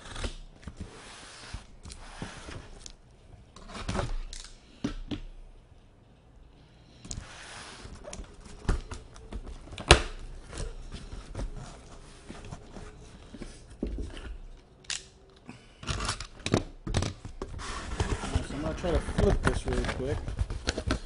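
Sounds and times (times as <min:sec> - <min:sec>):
cardboard flaps scraping and crackling: 0:17.1 - 0:21.0.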